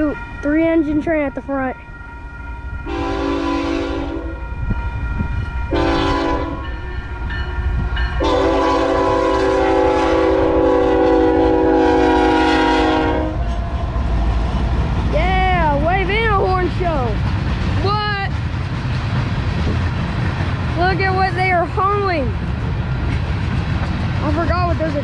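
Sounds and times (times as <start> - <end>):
low locomotive rumble: 0.0 - 25.0
locomotive air horn blasts: 2.8 - 4.6, 5.7 - 6.8, 8.2 - 13.6.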